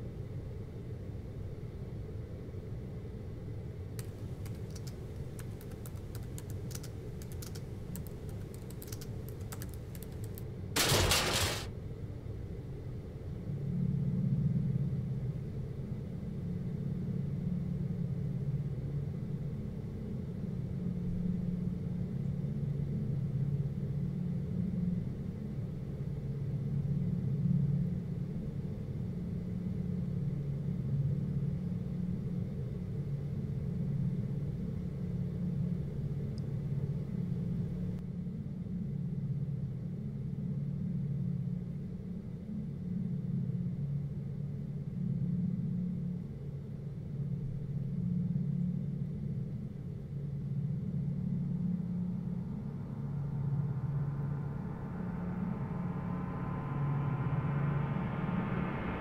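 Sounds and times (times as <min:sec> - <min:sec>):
steady low rumble: 0:00.5 - 0:12.4, 0:13.0 - 0:59.0
laptop keyboard tapping: 0:04.0 - 0:10.4
loud noisy burst: 0:10.8 - 0:11.7.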